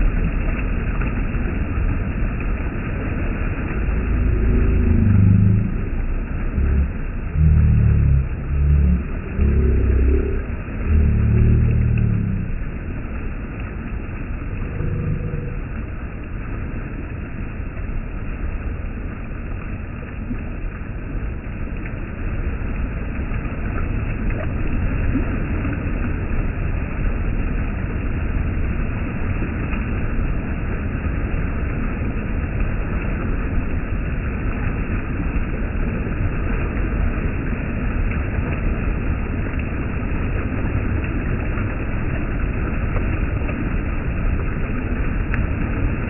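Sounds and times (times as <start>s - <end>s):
stream water rushing: 0.0s - 46.0s.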